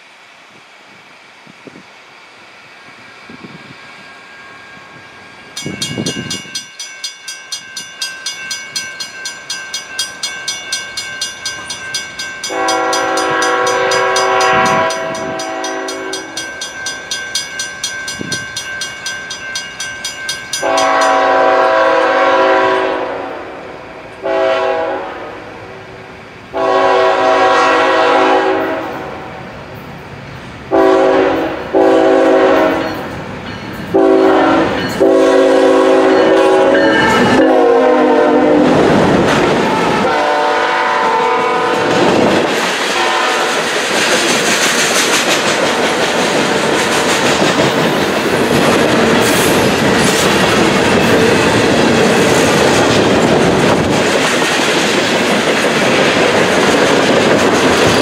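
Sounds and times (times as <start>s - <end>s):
train engine and wheel noise: 0.0s - 58.0s
crossing bell ringing: 3.9s - 22.5s, 30.8s - 38.6s, 57.8s - 58.0s
locomotive air horn blasts: 12.5s - 16.4s, 20.6s - 25.8s, 26.6s - 29.3s, 30.7s - 32.9s, 33.9s - 38.8s, 39.8s - 42.1s, 43.0s - 43.6s.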